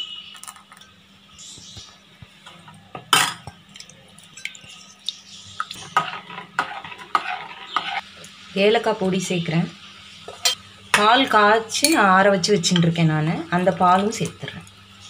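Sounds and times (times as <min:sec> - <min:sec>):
metal ladle scraping metal pot: 0:05.8 - 0:08.0.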